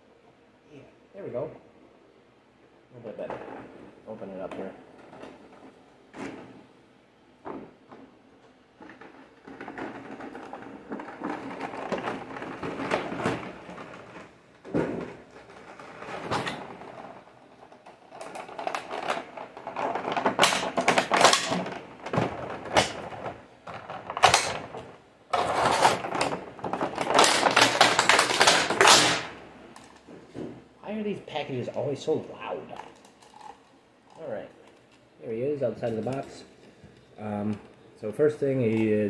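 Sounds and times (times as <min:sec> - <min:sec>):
plastic packaging crinkling: 0:25.4 - 0:30.0.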